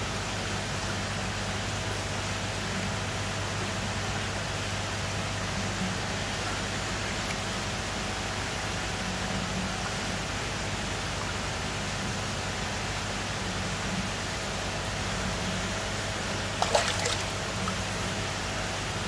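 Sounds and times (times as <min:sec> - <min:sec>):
rushing water: 0:16.4 - 0:18.0.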